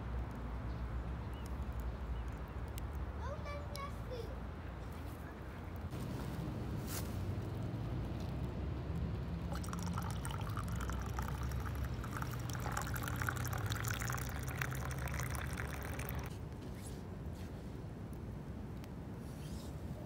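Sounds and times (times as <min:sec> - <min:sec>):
cocoa pouring into metal mug: 0:09.5 - 0:16.3.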